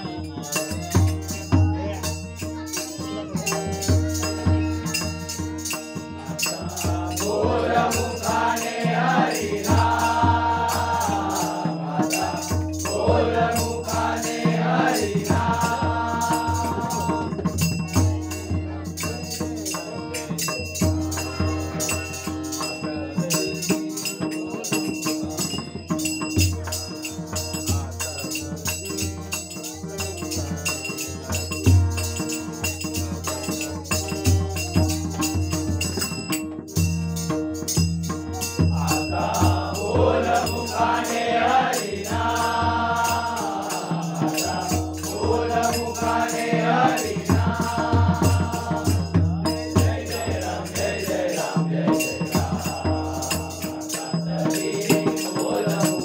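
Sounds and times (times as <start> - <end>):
other voices singing: 0.0 - 20.5, 38.4 - 56.0
harmonium held notes: 0.0 - 51.3
hand drum beat: 0.0 - 56.0
girl singing: 2.3 - 5.4.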